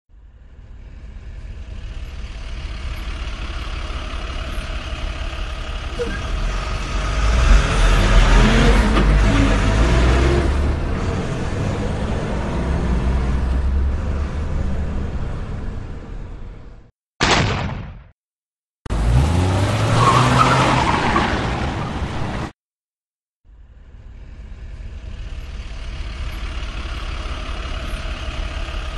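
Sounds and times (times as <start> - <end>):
pickup truck engine revving: 4.1 - 15.1, 18.9 - 21.0.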